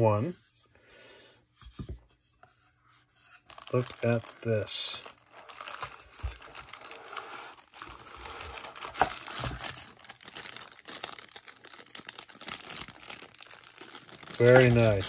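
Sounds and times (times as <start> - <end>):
plastic bag crinkling: 3.3 - 15.0.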